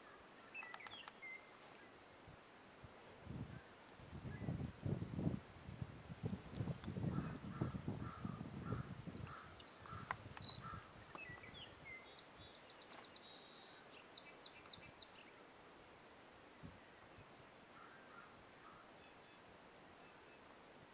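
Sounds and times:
songbirds chirping and trilling: 0.0 - 2.4, 6.8 - 20.9.

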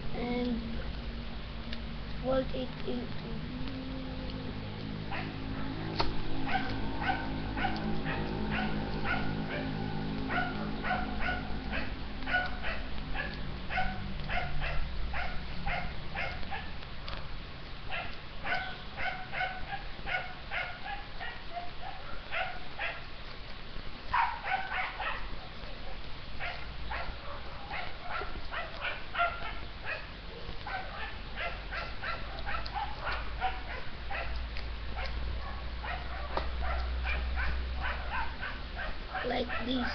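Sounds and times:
low steady hum: 0.0 - 39.9
dog barking in high yaps: 10.3 - 16.7, 17.9 - 23.1, 24.1 - 25.3, 25.9 - 34.4, 35.0 - 39.9.

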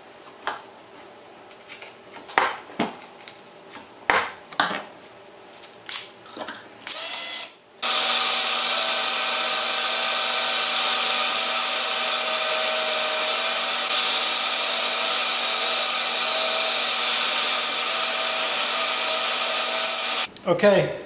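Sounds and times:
cordless drill running: 6.9 - 20.3
shop vacuum running: 6.9 - 20.3.

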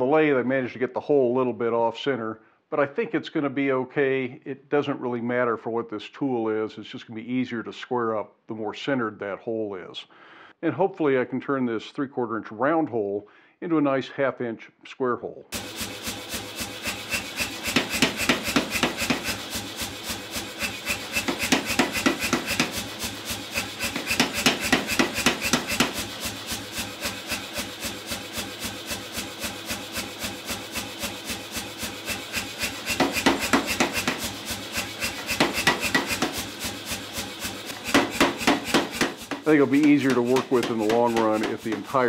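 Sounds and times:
power hammer striking hot steel: 15.6 - 42.0.

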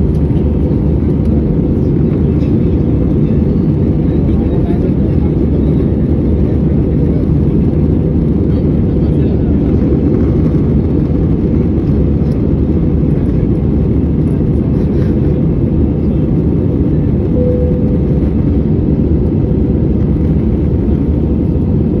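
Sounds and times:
jet engine cabin roar: 0.0 - 22.0
brief low tone: 17.3 - 18.6.

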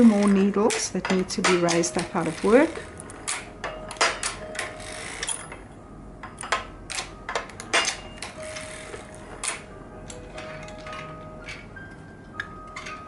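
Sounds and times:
knitting machine clicking: 0.0 - 5.4.

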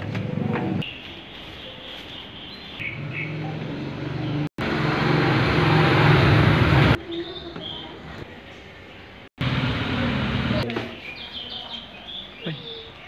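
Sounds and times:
high bird chirps: 0.8 - 3.5.

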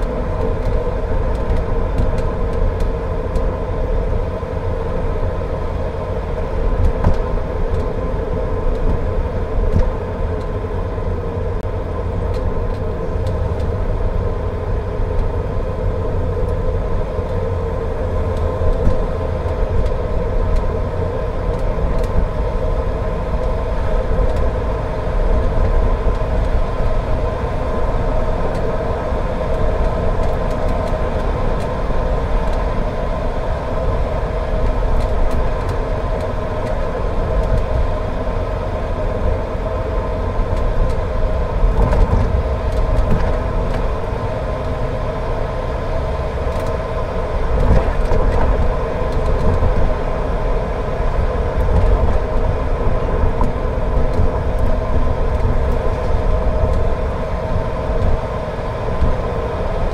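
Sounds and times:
car tyres and engine rumble: 0.0 - 59.9
faint ticks: 21.5 - 22.2.

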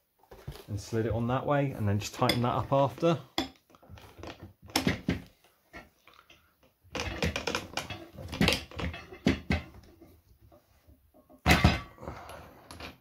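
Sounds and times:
metal parts clicking and knocking: 6.9 - 9.9.

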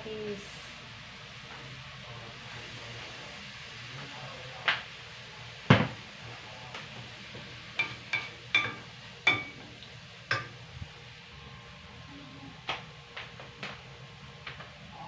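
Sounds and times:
meat sizzling: 0.0 - 15.0
wooden spatula knocking pan: 7.8 - 9.6, 10.3 - 10.6.

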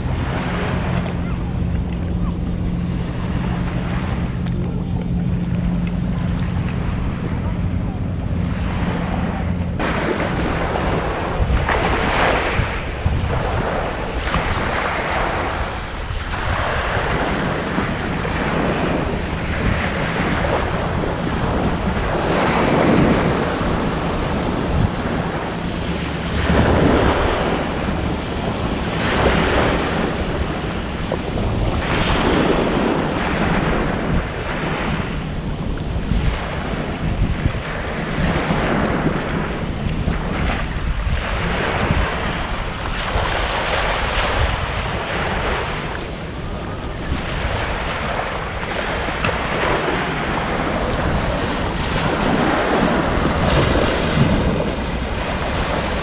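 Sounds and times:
low steady hum: 0.0 - 11.7
waves washing ashore: 0.0 - 56.0
wind buffeting microphone: 0.0 - 56.0.

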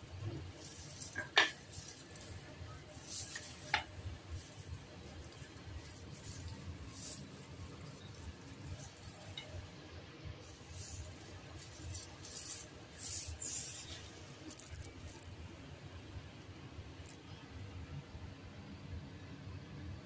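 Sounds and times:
plastic glove crinkling: 0.0 - 15.7.

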